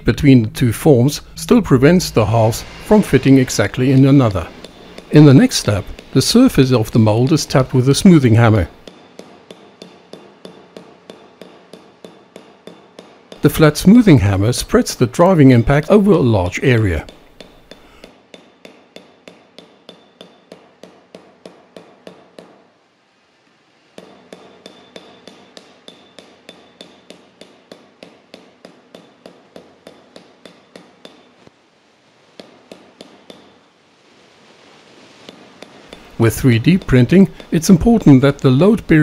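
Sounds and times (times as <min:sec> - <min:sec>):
hammer tapping lightly on metal: 0:05.8 - 0:06.2, 0:36.8 - 0:37.6.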